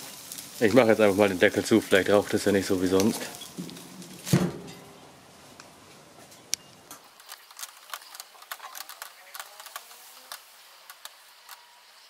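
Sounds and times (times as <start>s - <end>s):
meat crackling and popping on grill: 0.0s - 12.0s.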